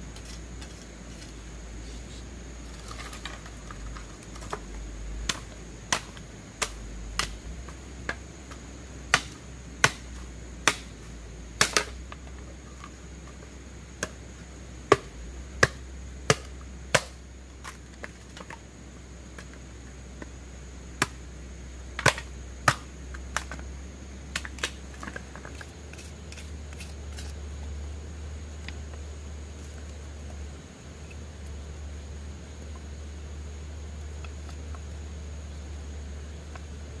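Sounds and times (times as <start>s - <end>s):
steady low hum: 0.0s - 37.0s
sharp chopping knocks: 9.1s - 10.9s, 11.6s - 12.0s, 14.9s - 17.2s.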